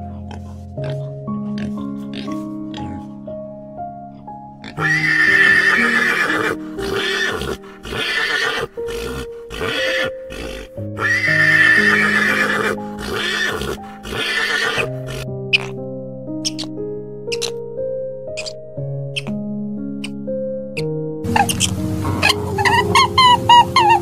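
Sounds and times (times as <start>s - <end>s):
background music: 0.0s - 24.0s
horse neighing: 4.8s - 15.7s.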